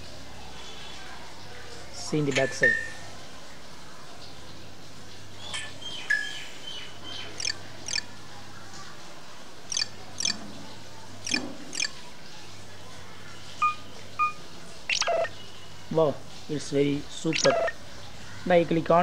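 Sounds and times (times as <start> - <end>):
electronic notification chirps and beeps: 7.4 - 8.0, 9.7 - 10.4, 11.3 - 11.9, 13.6 - 15.3, 17.3 - 17.8.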